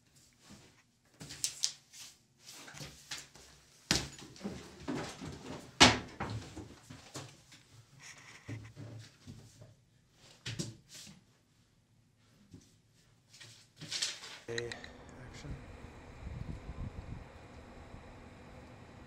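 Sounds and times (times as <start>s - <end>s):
papers rustling and scraping: 13.3s - 14.5s.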